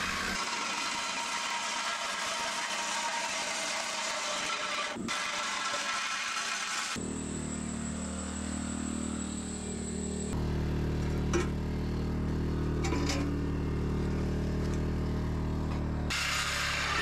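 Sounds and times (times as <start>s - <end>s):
reciprocating saw cutting steel: 0.0s - 10.4s, 16.1s - 17.0s
generator engine hum: 7.0s - 17.0s.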